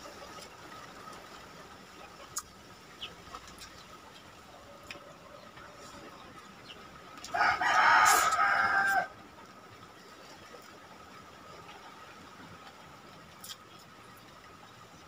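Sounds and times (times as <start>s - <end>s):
rooster crowing: 7.3s - 9.2s.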